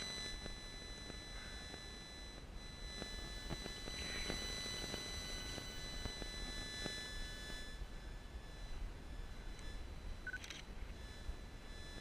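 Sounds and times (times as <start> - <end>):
electronic interference tones: 0.0 - 12.0.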